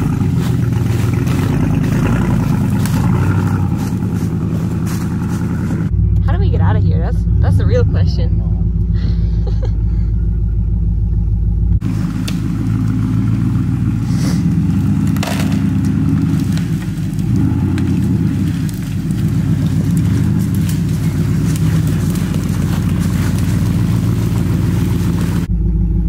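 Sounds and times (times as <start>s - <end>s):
twigs breaking under tires: 0.0s - 5.9s, 11.8s - 25.5s
truck engine running: 0.0s - 26.0s.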